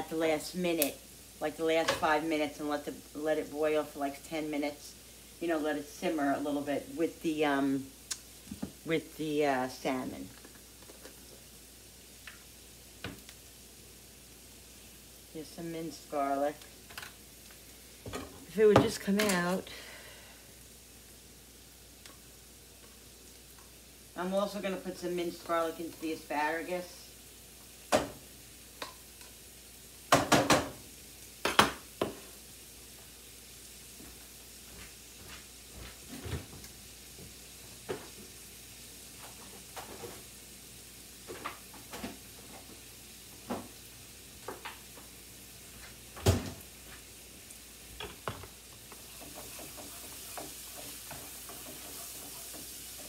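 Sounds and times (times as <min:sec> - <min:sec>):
onions sizzling in a frying pan: 0:00.0 - 0:53.0
spatula stirring a pan: 0:27.6 - 0:33.2, 0:44.4 - 0:53.0.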